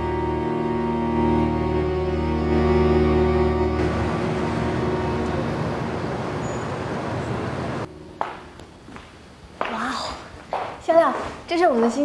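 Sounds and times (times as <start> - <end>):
music with held chords: 0.0 - 6.1
city traffic noise: 0.0 - 9.8.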